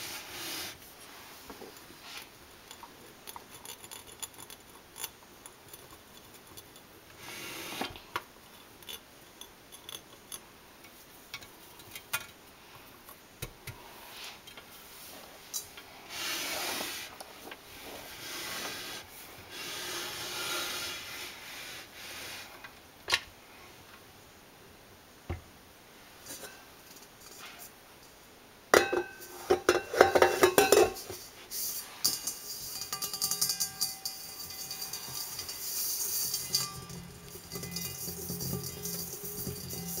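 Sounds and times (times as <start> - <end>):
rubbing scrape on metal: 16.1 - 17.1, 17.8 - 22.6, 33.8 - 40.0
metal bowl clanking: 28.7 - 40.0
metal scraping and rattling: 29.2 - 40.0.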